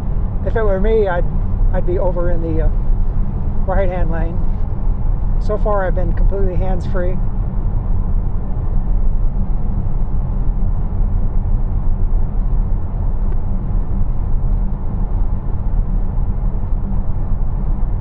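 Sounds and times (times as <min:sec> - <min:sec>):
road and tyre rumble in car: 0:00.0 - 0:18.0.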